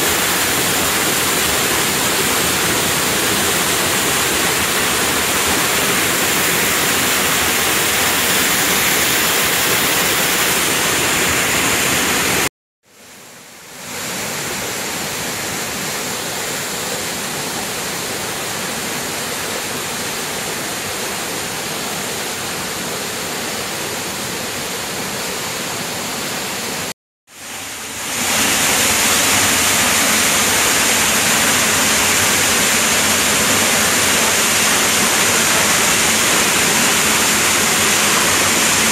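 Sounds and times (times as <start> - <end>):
waterfall pouring into pool: 0.0 - 12.5, 27.4 - 38.9
stream running over rocks: 13.8 - 38.9.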